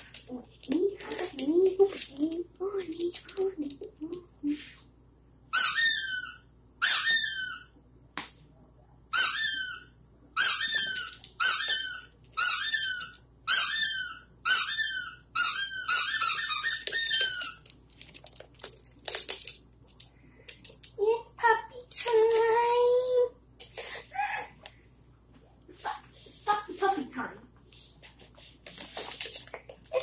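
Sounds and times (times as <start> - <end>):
squeaky rubber dog toy: 5.5 - 7.7, 9.1 - 17.6.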